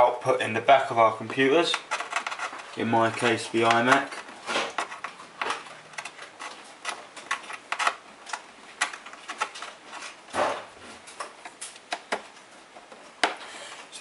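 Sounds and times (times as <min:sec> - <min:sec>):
rustling scrape: 0:01.8 - 0:08.0.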